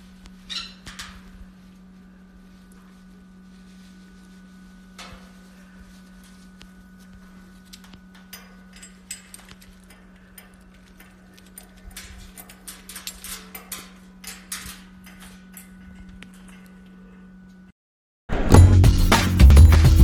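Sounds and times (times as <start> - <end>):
steady low hum: 0.0 - 17.7
parrot clicks and rustles: 5.0 - 16.9.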